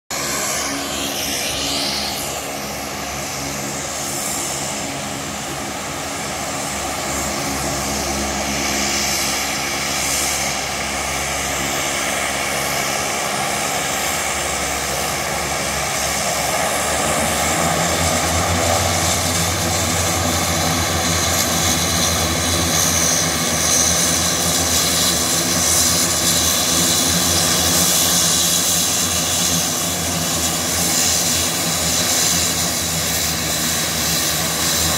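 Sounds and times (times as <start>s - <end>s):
high turbine whine: 0.1s - 34.9s
propeller drone: 0.1s - 34.9s.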